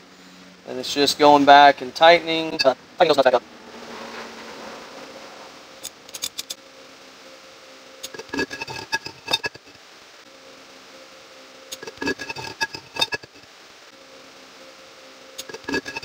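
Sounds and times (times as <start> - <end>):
faint steady hum: 0.0 - 16.0
ratchet wrench clicking: 5.8 - 6.6.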